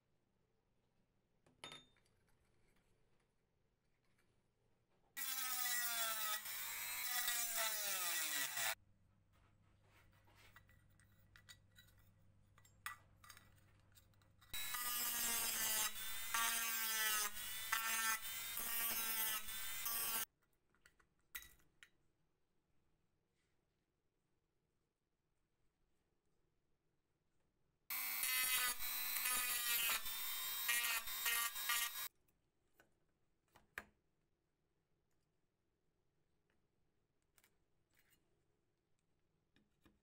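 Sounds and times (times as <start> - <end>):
small power tool running: 5.2 - 8.8, 14.6 - 20.2, 27.9 - 32.1.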